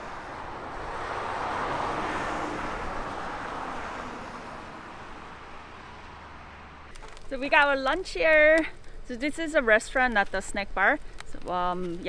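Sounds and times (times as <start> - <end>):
vehicle passing: 0.0 - 6.9.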